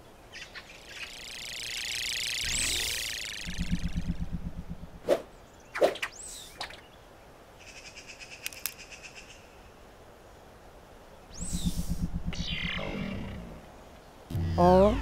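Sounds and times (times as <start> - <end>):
soft rapid trill: 1.4 - 5.0
quick sharp swishes: 5.0 - 6.1.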